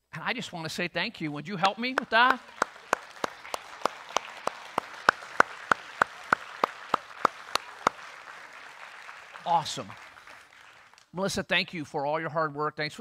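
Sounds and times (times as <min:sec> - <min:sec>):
close steady hand claps: 0:01.6 - 0:11.2
congregation applauding: 0:01.6 - 0:11.2.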